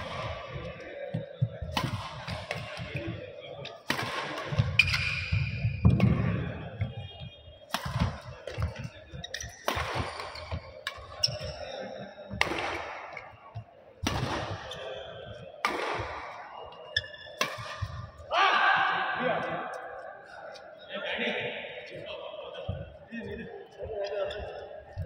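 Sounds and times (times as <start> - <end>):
rackets hitting shuttlecock: 0.0 - 3.2, 3.8 - 6.9, 7.7 - 11.6, 12.3 - 13.4, 14.0 - 18.1
shoes squeaking on court: 4.5 - 7.3, 8.2 - 12.4, 16.5 - 18.0, 22.7 - 25.0.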